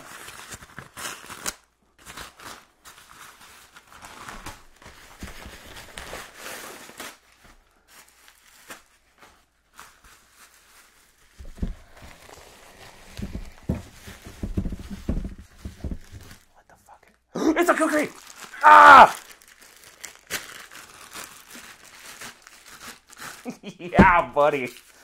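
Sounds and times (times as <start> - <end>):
packing paper rustling and tearing: 0.0 - 16.5, 17.7 - 25.0
bubble wrap crinkling: 0.0 - 16.6, 17.7 - 25.0
soft handling knocks: 11.4 - 12.0, 13.0 - 16.4.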